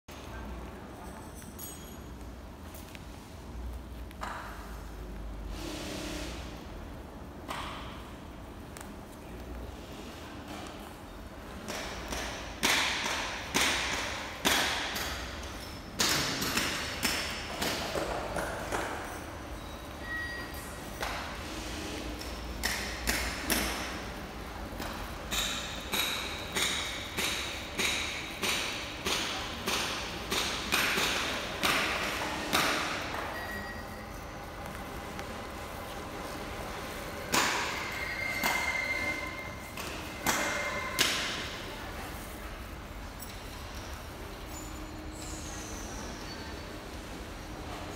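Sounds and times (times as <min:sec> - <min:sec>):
sharp knocks echoing: 0:11.6 - 0:19.0, 0:24.8 - 0:33.3
sharp ringing taps: 0:37.3 - 0:41.2.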